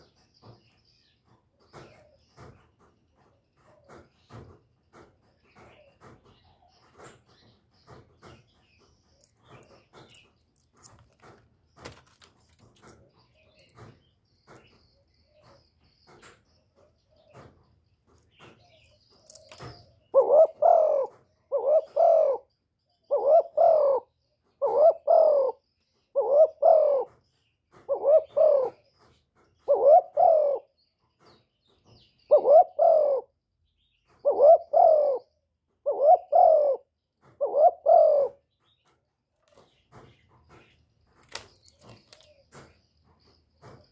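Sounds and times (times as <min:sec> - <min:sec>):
dove cooing: 0:18.4 - 0:30.8, 0:32.3 - 0:33.4, 0:34.2 - 0:38.5.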